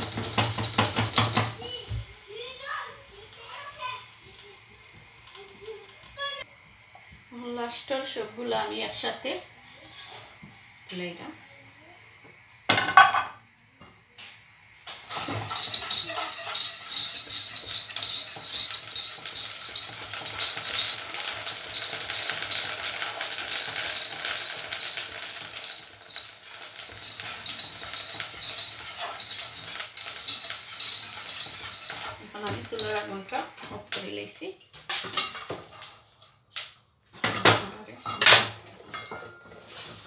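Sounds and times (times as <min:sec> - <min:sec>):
frying pan clanking on hob: 0:00.0 - 0:01.9, 0:12.7 - 0:13.4, 0:14.9 - 0:34.1
rice rattling in hot saucepan: 0:00.0 - 0:06.5, 0:12.6 - 0:13.4, 0:14.6 - 0:36.0.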